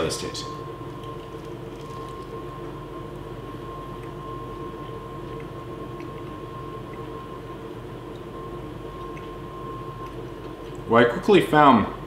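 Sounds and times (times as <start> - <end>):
room hum: 0.0 - 12.0
man chewing crispy food: 1.0 - 2.4.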